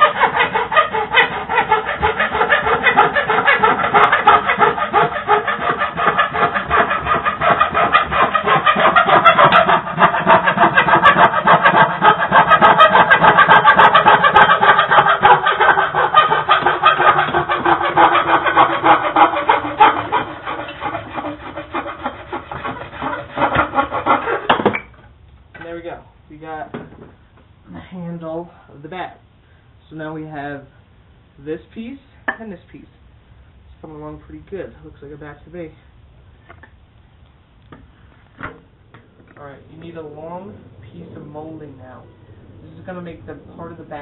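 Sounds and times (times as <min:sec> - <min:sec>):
hand saw cutting wood: 0:00.0 - 0:24.8.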